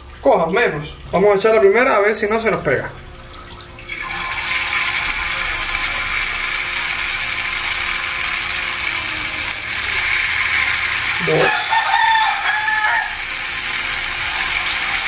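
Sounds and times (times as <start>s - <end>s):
batter sizzling in hot oil: 3.0s - 15.0s.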